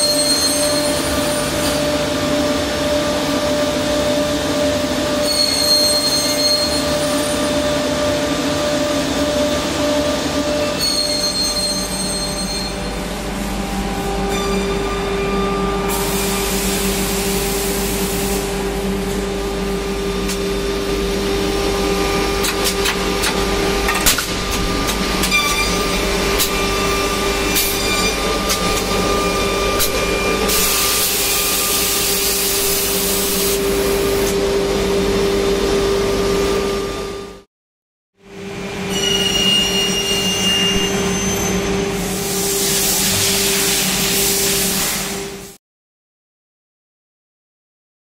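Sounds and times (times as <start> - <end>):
machine motor hum: 15.8 - 37.4.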